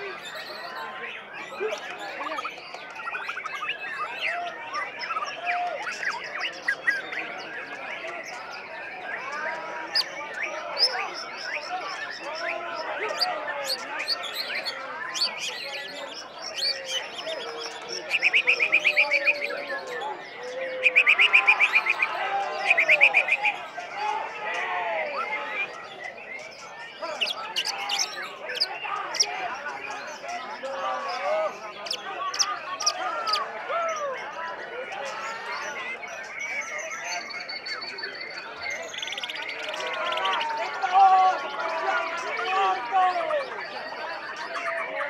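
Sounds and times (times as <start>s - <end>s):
chorus of songbirds: 0.0s - 45.0s
songbird singing whistles and trills: 1.4s - 23.6s.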